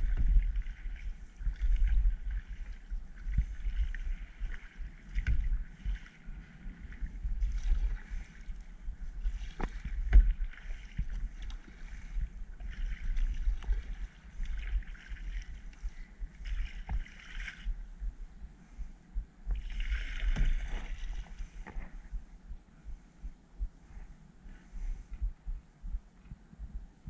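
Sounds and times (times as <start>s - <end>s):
paddle strokes splashing: 0.0s - 17.8s, 19.5s - 22.0s
wind rumble on microphone: 0.0s - 27.0s.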